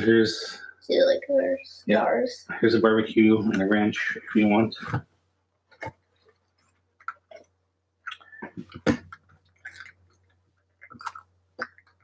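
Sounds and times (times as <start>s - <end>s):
chewing: 8.1s - 12.0s.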